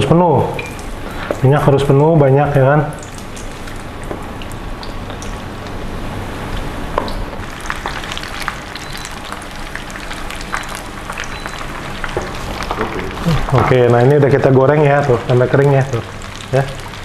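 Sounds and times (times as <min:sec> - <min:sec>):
chicken deep-frying in oil: 0:00.0 - 0:17.0
crackles and pops of frying: 0:02.9 - 0:05.8, 0:06.5 - 0:17.0.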